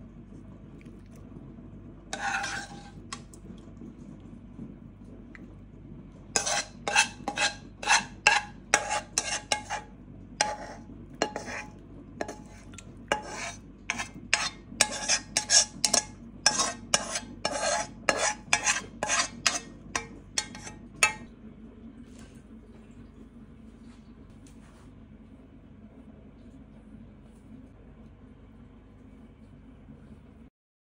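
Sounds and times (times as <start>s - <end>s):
spatula scraping metal pan: 2.1s - 3.3s, 6.4s - 21.3s.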